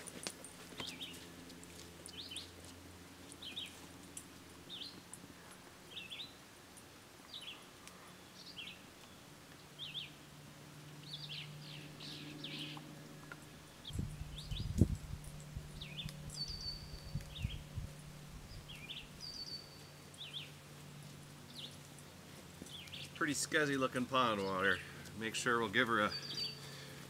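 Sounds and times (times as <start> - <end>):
faint outdoor ambience: 0.0 - 27.0
songbird chirping: 0.8 - 6.4, 7.2 - 27.0
low rumble: 11.7 - 19.3.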